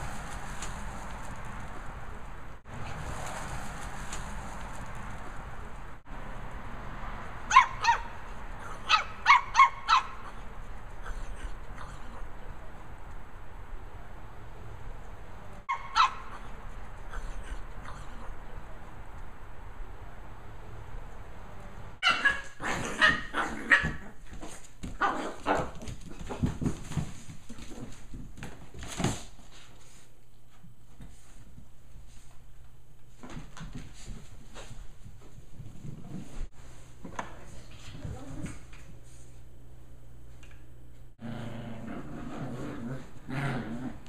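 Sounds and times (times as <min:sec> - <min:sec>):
puppy barking: 0:07.5 - 0:12.1, 0:15.7 - 0:16.6, 0:22.0 - 0:24.1, 0:25.0 - 0:25.8
puppies growling roughly: 0:41.2 - 0:44.0.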